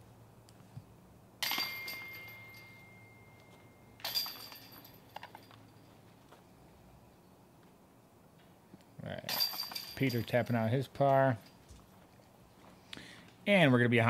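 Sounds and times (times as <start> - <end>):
light chain clinks: 1.4 - 6.0, 9.2 - 12.4
putts crashing into metal chains: 1.4 - 6.0, 9.1 - 12.4
ringing metallic tone: 1.4 - 6.0.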